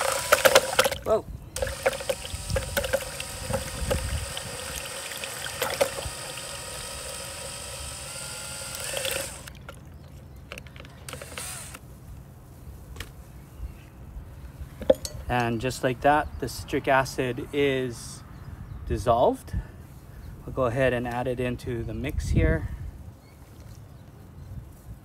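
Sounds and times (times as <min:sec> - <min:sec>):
drill motor whining: 0:00.0 - 0:00.9, 0:01.6 - 0:09.6, 0:11.1 - 0:11.8.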